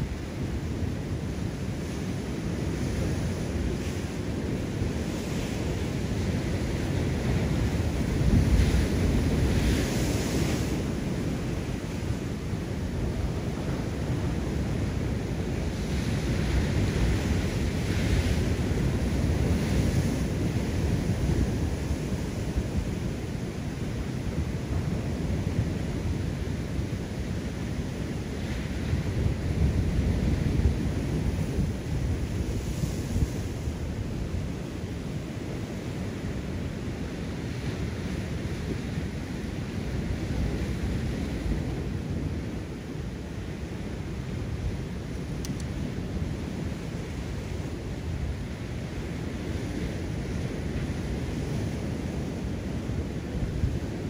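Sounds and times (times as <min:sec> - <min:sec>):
wind rumble on microphone: 0:00.0 - 0:54.0.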